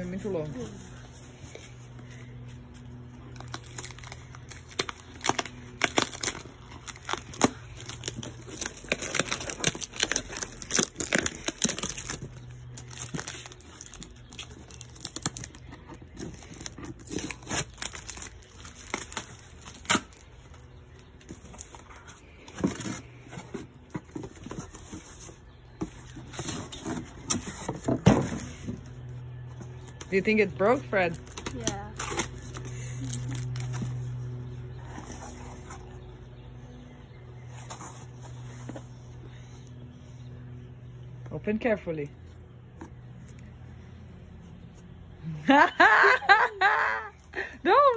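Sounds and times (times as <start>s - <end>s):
tape crinkling: 1.3s - 36.3s
tape ripping off cardboard: 3.3s - 20.6s.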